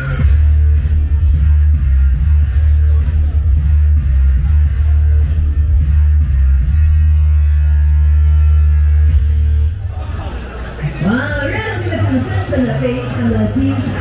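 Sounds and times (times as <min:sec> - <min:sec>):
dance music with heavy bass beat: 0:00.0 - 0:09.8.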